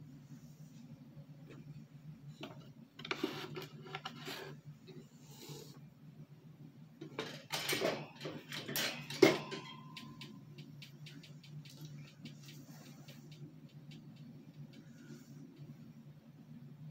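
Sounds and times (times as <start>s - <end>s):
steady low hum: 0.0s - 16.9s
scraping and rustling: 2.3s - 5.8s.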